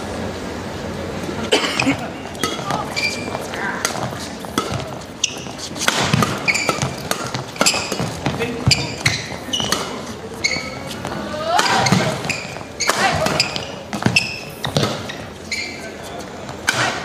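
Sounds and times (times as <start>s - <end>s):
shoes squeaking on court: 1.3s - 17.0s
racket hitting shuttlecock: 2.3s - 15.3s, 16.5s - 17.0s.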